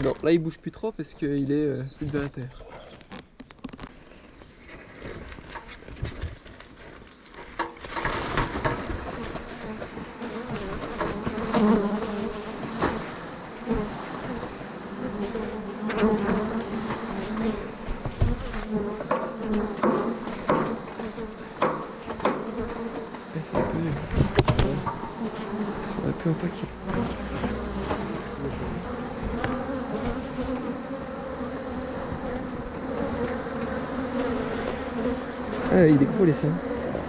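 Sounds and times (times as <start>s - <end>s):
bee swarm buzzing loudly: 7.6s - 37.0s.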